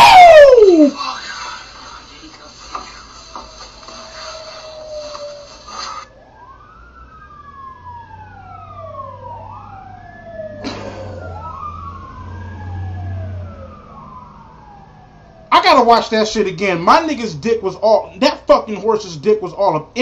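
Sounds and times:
emergency vehicle siren wailing: 0:00.0 - 0:19.8.

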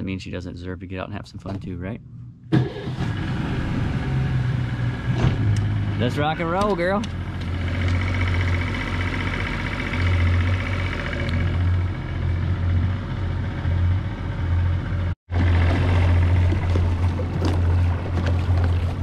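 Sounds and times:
outboard motor running: 0:06.0 - 0:14.3, 0:15.3 - 0:19.0
water rushing past: 0:15.3 - 0:19.0.

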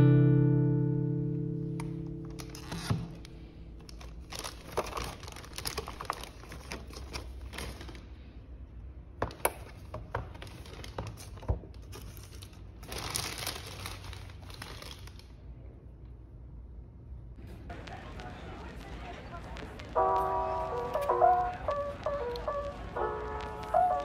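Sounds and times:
plastic bag crinkling: 0:02.3 - 0:08.1, 0:10.3 - 0:15.4.

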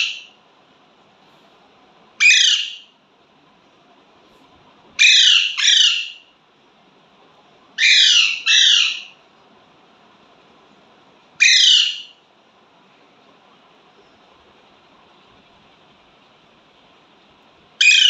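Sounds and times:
parakeet squawking: 0:00.0 - 0:00.3, 0:02.2 - 0:02.9, 0:05.0 - 0:06.3, 0:07.8 - 0:09.2, 0:11.4 - 0:12.2, 0:17.8 - 0:18.0.

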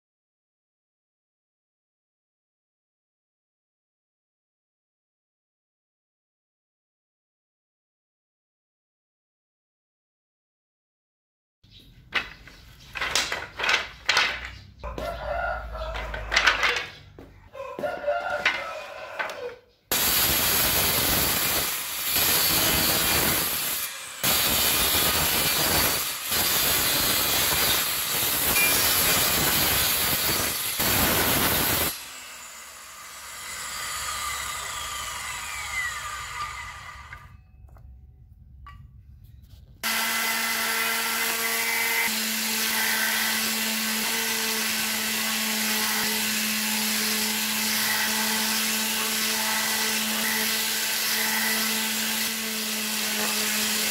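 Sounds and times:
wooden sticks knocking: 0:12.1 - 0:15.1, 0:15.9 - 0:18.6
circular saw cutting wood: 0:17.8 - 0:37.4, 0:39.8 - 0:53.9
saw blade winding down: 0:19.2 - 0:37.4
palm sander humming: 0:19.9 - 0:37.3, 0:39.8 - 0:53.9.

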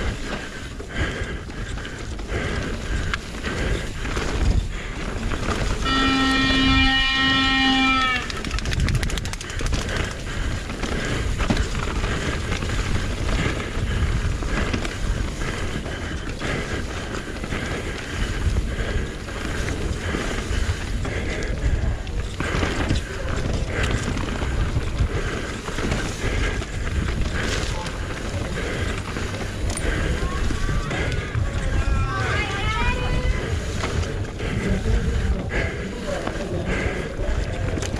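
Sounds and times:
bike chain and frame rattling: 0:00.0 - 0:37.9
bike tyres on dirt and rocks: 0:00.0 - 0:37.9
wind on microphone: 0:00.0 - 0:37.9
loud steady pitched tone: 0:05.8 - 0:08.3.

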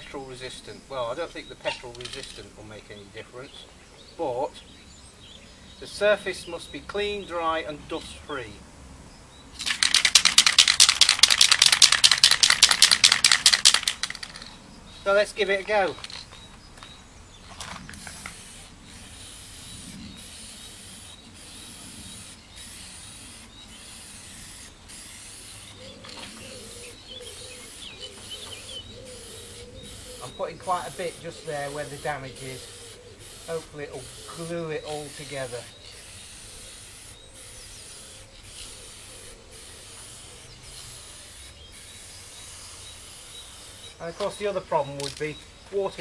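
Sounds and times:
aerosol can spraying: 0:09.6 - 0:14.5, 0:18.0 - 0:45.2.

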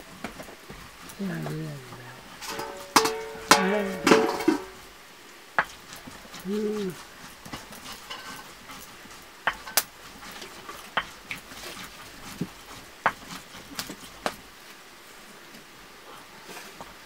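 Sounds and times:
faint hiss: 0:13.9 - 0:17.0.

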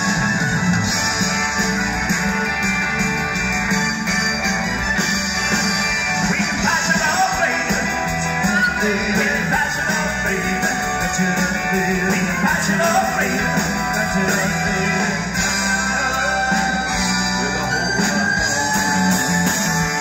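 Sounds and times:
live rock band playing: 0:00.0 - 0:20.0
man singing into a microphone: 0:06.3 - 0:15.3.

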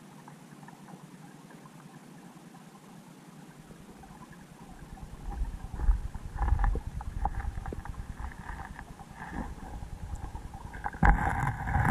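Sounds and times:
low underwater rumble: 0:03.6 - 0:11.9
sharp underwater clicks and knocks: 0:05.2 - 0:11.9.

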